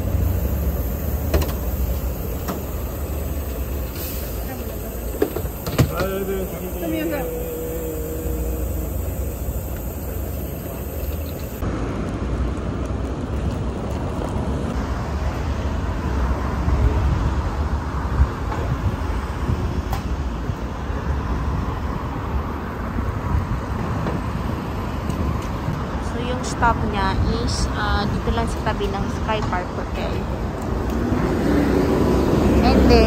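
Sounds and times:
coach engine rumbling: 0:00.0 - 0:14.9
city street traffic: 0:00.0 - 0:33.0.

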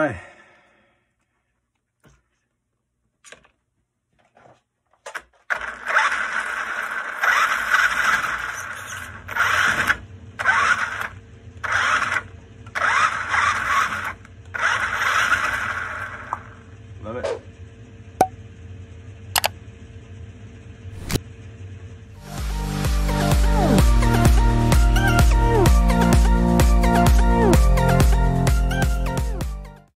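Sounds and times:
toy car motor spinning wheels: 0:05.5 - 0:16.5.

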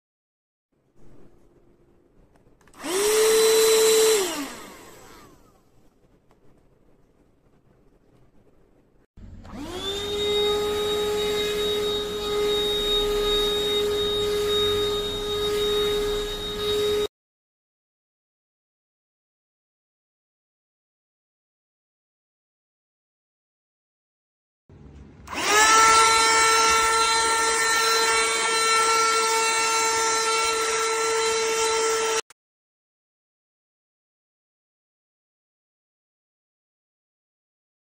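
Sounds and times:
handheld vacuum cleaner whining: 0:02.7 - 0:05.7, 0:09.2 - 0:17.1, 0:25.2 - 0:32.3.

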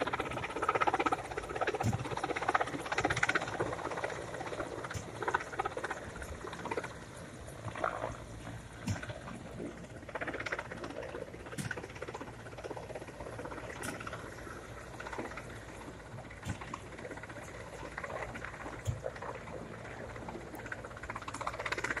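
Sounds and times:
distant helicopter rotor chopping: 0:00.0 - 0:22.0.

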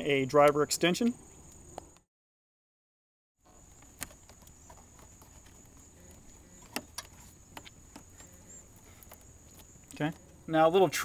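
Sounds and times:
faint steady high whine: 0:03.4 - 0:11.0.

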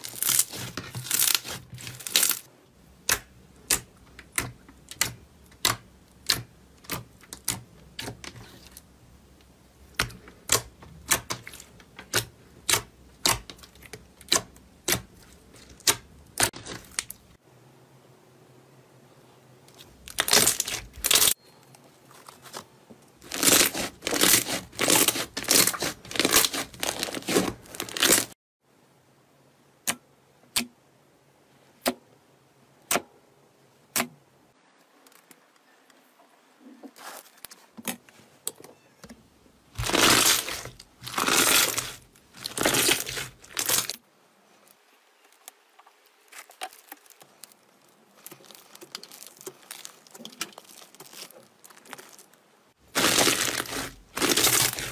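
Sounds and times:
slime crackling and popping: 0:00.0 - 0:08.8, 0:10.0 - 0:17.2, 0:19.8 - 0:21.4, 0:23.2 - 0:28.3, 0:39.8 - 0:44.0, 0:46.3 - 0:54.9.

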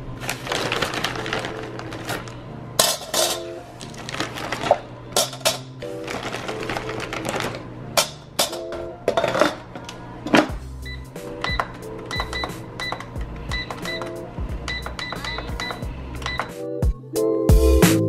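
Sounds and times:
crinkly plastic bag rustling: 0:00.2 - 0:02.4, 0:03.2 - 0:05.2, 0:05.8 - 0:07.6
background music: 0:00.3 - 0:18.0.

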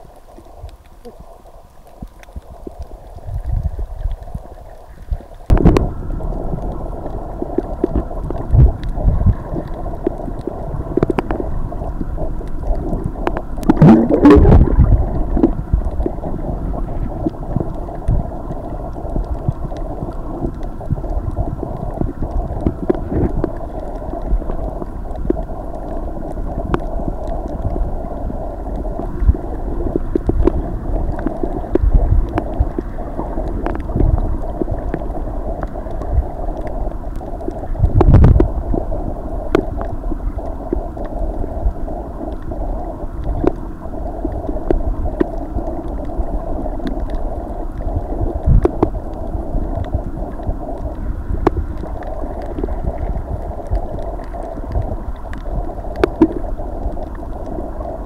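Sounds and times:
muffled underwater sloshing: 0:00.0 - 0:58.0
steady hum: 0:05.5 - 0:58.0
water splashing: 0:12.8 - 0:17.8.

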